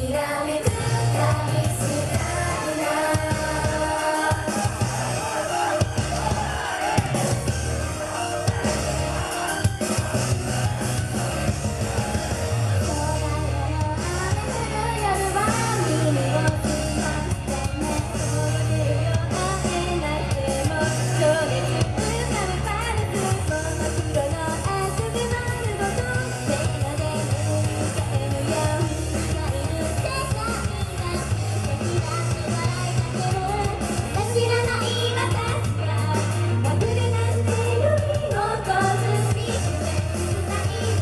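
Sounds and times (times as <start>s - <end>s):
person singing: 0.0s - 7.3s
rock band playing: 0.6s - 41.0s.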